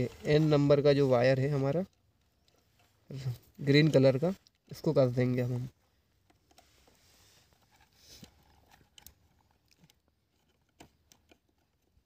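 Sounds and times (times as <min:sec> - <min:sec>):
faint screwdriver clicks and scrapes: 0:06.2 - 0:12.0.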